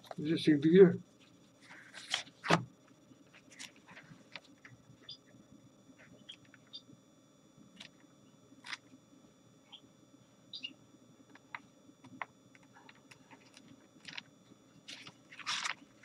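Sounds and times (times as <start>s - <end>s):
book pages turning: 1.6s - 2.6s, 3.3s - 4.8s, 11.3s - 16.0s
paper crackling: 1.7s - 2.6s, 12.2s - 16.0s.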